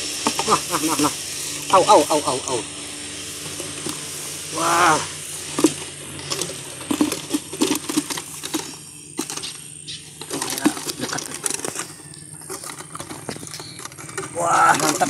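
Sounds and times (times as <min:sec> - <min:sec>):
fish flapping in a trap: 0:03.6 - 0:15.0.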